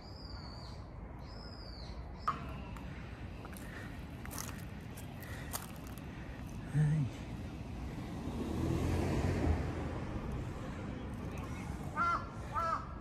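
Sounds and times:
vehicle passing: 2.7s - 13.0s.

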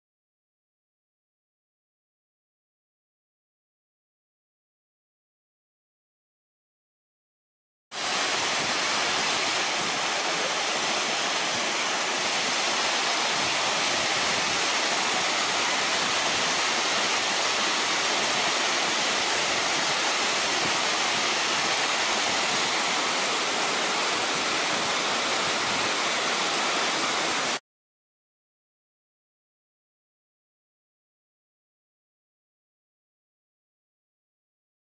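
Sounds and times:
waterfall rushing: 8.0s - 27.6s.

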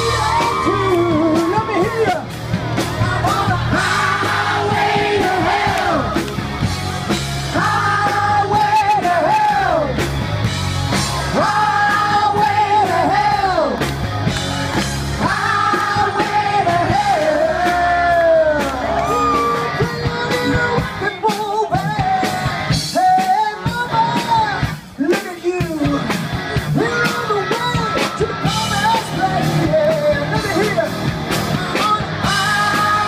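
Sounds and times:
crowd yelling: 0.0s - 21.0s
live rock band playing: 0.0s - 33.0s.

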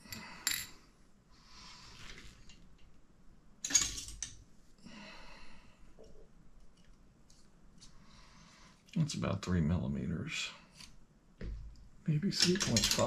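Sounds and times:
soft breathy sound: 4.8s - 6.3s, 7.8s - 8.9s.

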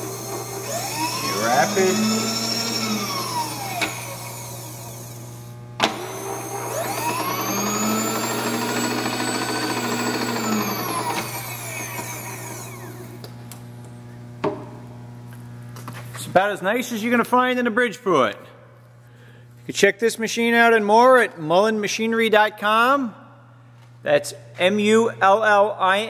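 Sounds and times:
feed motor whining: 0.0s - 14.4s.

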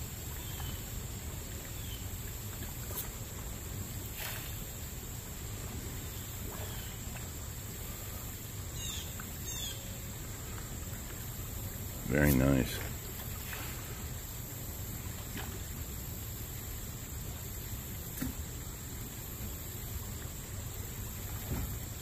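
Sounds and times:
low outdoor rumble: 0.0s - 22.0s
falling bird calls: 8.7s - 10.0s
faint bird chirps: 8.8s - 10.0s.

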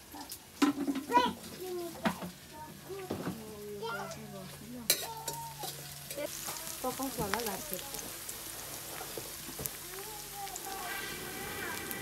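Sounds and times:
onions sizzling in a wok: 0.0s - 12.0s
ladle clanking against pan: 4.9s - 5.8s.

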